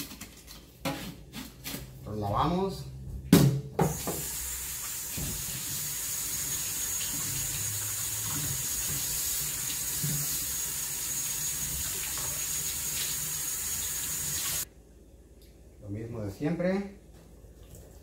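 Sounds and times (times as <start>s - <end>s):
faucet running into metal sink: 3.9s - 14.6s.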